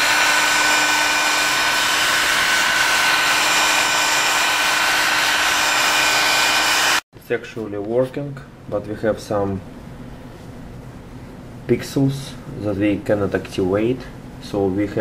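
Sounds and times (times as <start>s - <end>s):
heat gun blowing air: 0.0s - 7.0s.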